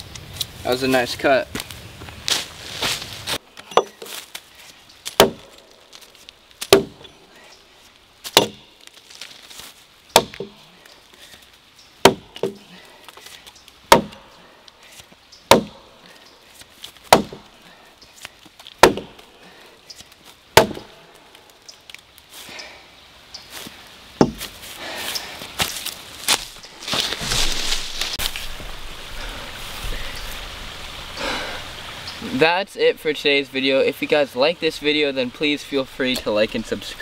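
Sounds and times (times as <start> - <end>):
axe chopping into log: 5.1 - 5.6, 6.6 - 7.1, 8.3 - 8.7, 10.1 - 10.6, 12.0 - 12.7, 13.9 - 14.2, 15.5 - 15.9, 17.1 - 17.5, 18.8 - 19.2, 20.6 - 21.0, 24.2 - 24.5.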